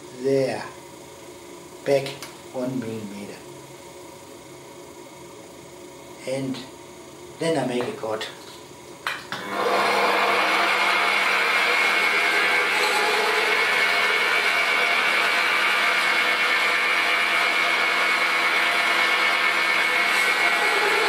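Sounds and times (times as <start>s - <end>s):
metal lathe hum: 9.4s - 21.0s
high whine: 10.8s - 21.0s.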